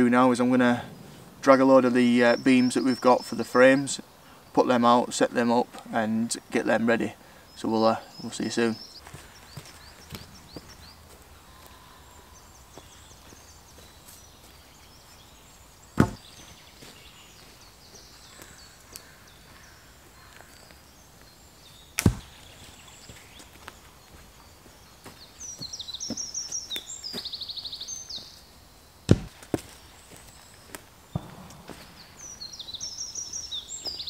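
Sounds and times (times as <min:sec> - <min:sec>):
heavy wooden thuds: 0:16.0 - 0:16.5, 0:29.1 - 0:29.7.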